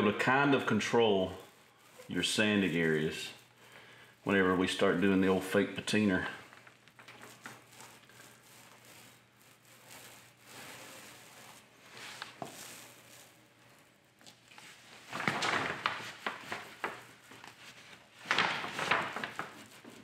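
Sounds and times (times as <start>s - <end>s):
paper rustling and crinkling: 0.6s - 20.0s.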